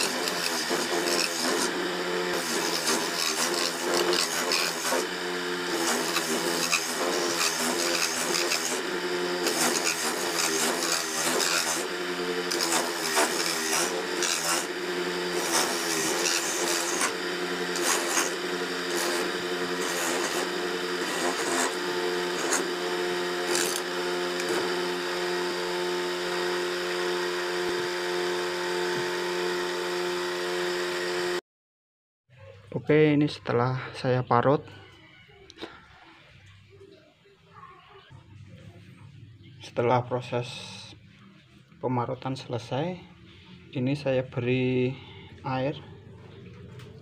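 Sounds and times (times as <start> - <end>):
coconut grating scrapes: 0.0 - 31.3
electric grater motor running: 0.0 - 31.4.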